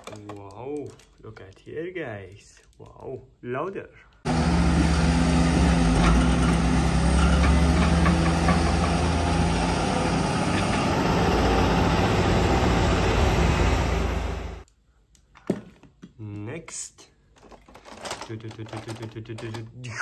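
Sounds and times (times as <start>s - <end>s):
diesel machinery running: 4.3s - 14.6s.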